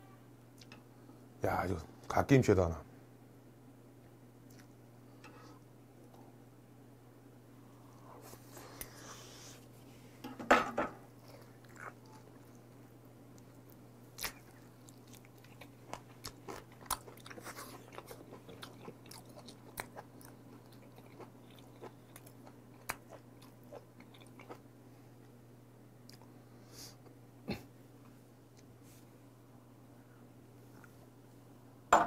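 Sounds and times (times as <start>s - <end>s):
chewing raw meat: 11.2s - 24.6s.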